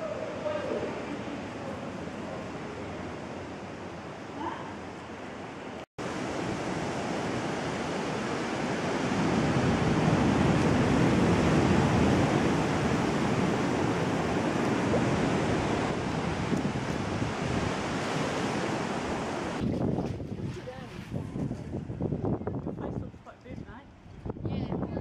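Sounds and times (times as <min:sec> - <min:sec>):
ocean surf: 0:00.0 - 0:21.0
wind on microphone: 0:06.1 - 0:25.0.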